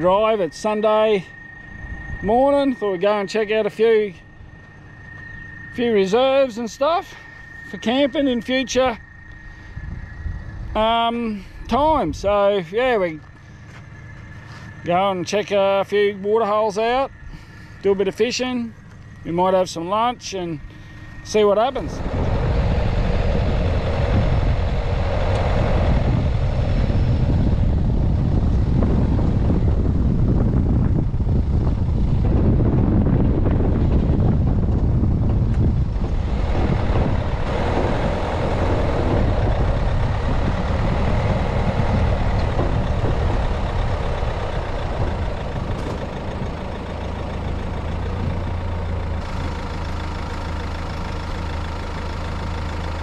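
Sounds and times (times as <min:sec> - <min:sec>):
tyres on dirt track: 0:00.0 - 0:53.0
vehicle engine: 0:00.0 - 0:53.0
bumping and rattling: 0:32.1 - 0:46.6.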